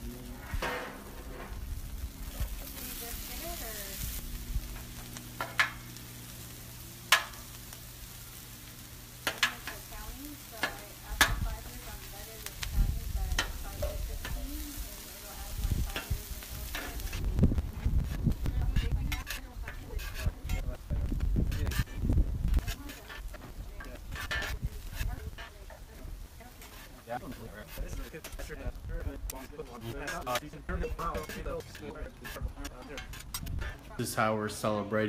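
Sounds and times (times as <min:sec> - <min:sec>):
metal spatula scraping griddle: 0:00.0 - 0:28.7, 0:29.3 - 0:34.0
meat and vegetables sizzling: 0:00.0 - 0:35.0
spatula clacking on steel: 0:05.4 - 0:05.8, 0:07.1 - 0:07.5, 0:09.2 - 0:09.8.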